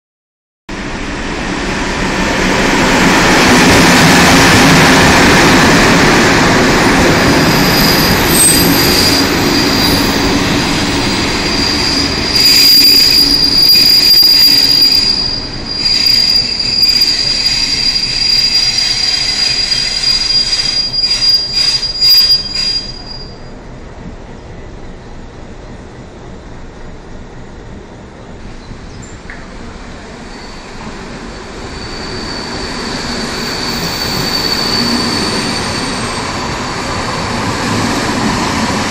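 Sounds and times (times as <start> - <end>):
passenger train running past: 0.7 - 38.9
sharp train clanks: 0.8 - 23.6, 28.4 - 38.9
high-pitched brake squeal: 7.3 - 23.5, 30.2 - 36.4.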